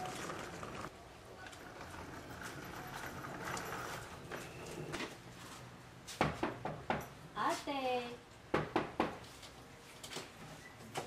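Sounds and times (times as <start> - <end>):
suitcase wheels rolling on wet pavement: 0.0 - 4.5
knock at a door: 8.5 - 9.2.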